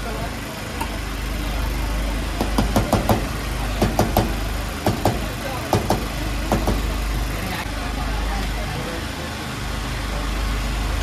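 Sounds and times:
low hum: 10.6s - 11.0s.

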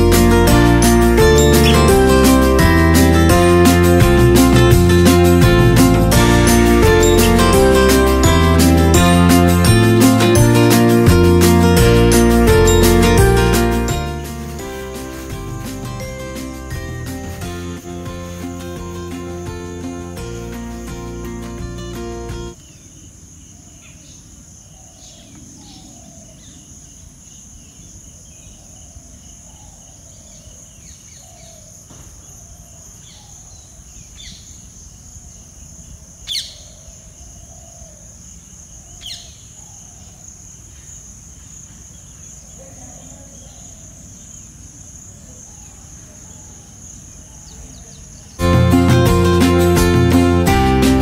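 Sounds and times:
bird chirps: 1.3s - 2.0s, 29.3s - 35.0s, 36.2s - 37.8s, 38.4s - 41.0s
insects droning: 12.6s - 48.4s.

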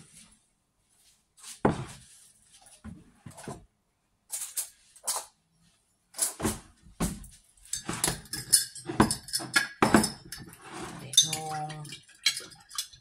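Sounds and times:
jars and containers clinking: 7.7s - 13.0s.

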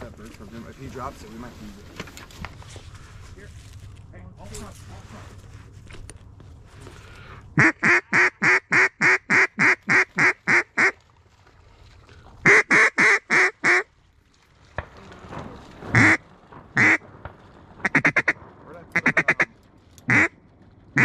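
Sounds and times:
duck call hen quacks: 7.6s - 10.9s, 20.1s - 20.3s.

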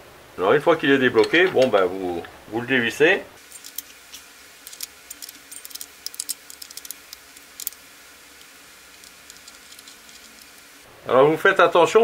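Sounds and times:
faint hiss: 0.0s - 12.0s
metallic clicks of bolt unscrewing: 3.5s - 7.8s.

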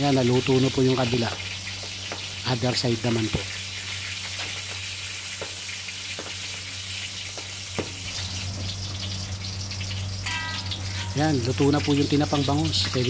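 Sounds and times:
fish sizzling in hot oil: 0.0s - 13.0s
oil popping: 3.2s - 11.2s
low hum: 7.9s - 13.0s.

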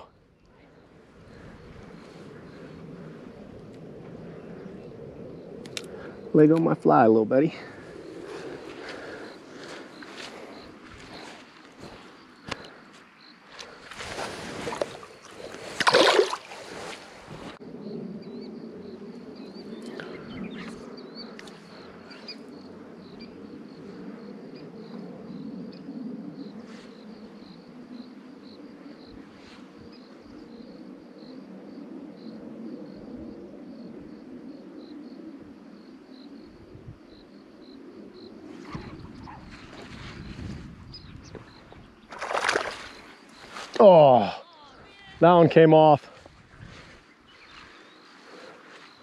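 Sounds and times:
fish splashing into water: 14.6s - 16.6s, 42.1s - 43.0s.

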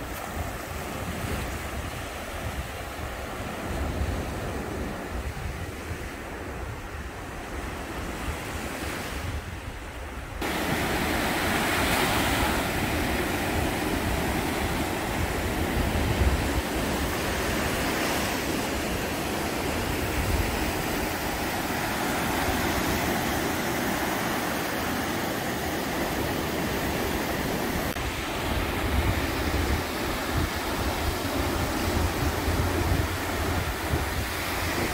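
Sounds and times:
wind buffeting microphone: 0.0s - 34.9s
surf breaking on beach: 10.4s - 34.9s.

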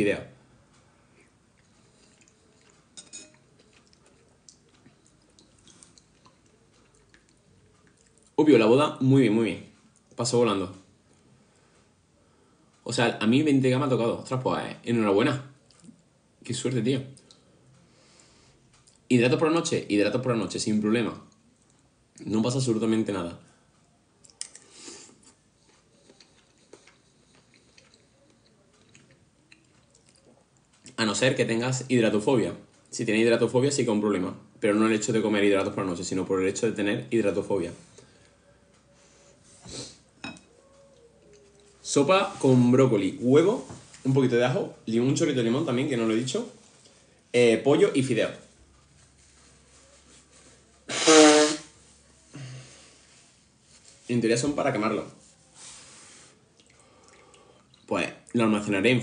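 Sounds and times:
spoon clinking on soup bowl: 3.0s - 3.5s.

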